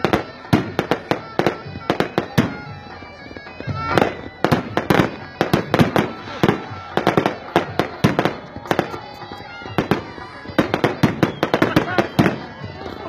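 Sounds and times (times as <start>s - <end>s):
voices: 0.0s - 13.0s
firecrackers cracking: 3.6s - 13.0s.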